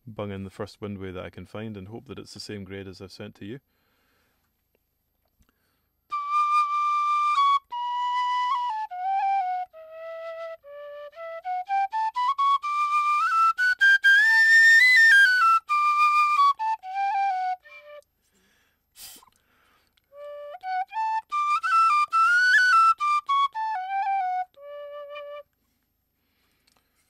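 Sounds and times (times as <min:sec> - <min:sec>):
penny whistle playing scales: 0:06.1 - 0:18.1, 0:20.1 - 0:25.6.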